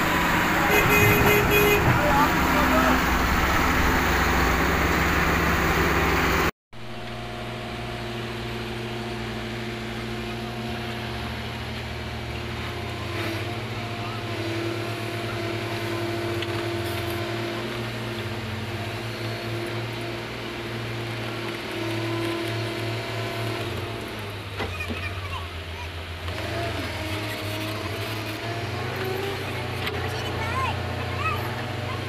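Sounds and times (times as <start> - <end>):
loud noisy rush: 0.0 - 6.5
diesel engine running: 0.0 - 32.0.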